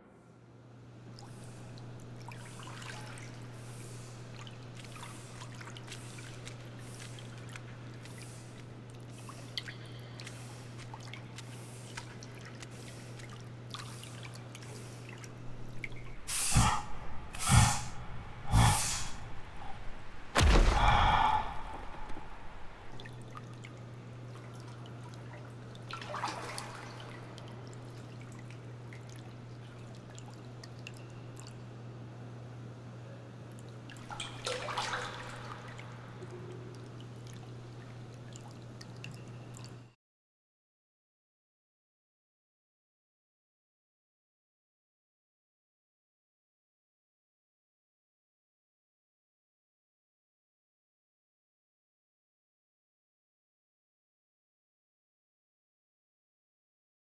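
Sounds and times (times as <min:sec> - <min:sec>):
faint watery sound: 0:00.8 - 0:40.0
water drips: 0:01.0 - 0:16.3, 0:19.2 - 0:31.8, 0:33.5 - 0:39.9
low hum: 0:15.4 - 0:23.8
heavy thuds: 0:20.3 - 0:22.9
loud crash: 0:20.4 - 0:21.9.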